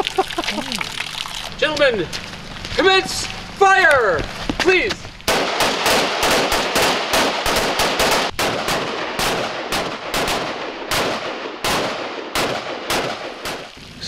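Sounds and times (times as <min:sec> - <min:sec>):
rifle shots with echo: 0:05.3 - 0:13.8.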